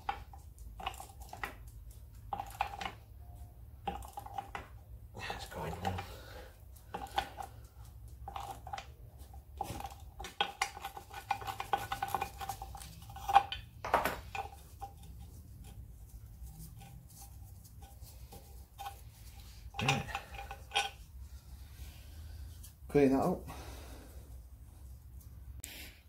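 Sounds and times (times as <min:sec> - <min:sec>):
spanner clicking and scraping metal: 0:09.6 - 0:21.1.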